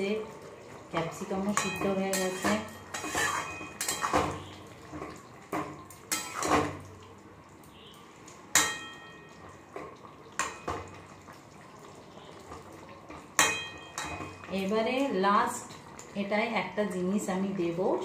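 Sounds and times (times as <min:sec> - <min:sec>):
wet stirring of curry: 0:00.3 - 0:14.6
metal spatula clanking on pan: 0:01.4 - 0:06.8, 0:08.5 - 0:09.4, 0:10.3 - 0:11.0, 0:13.1 - 0:14.6.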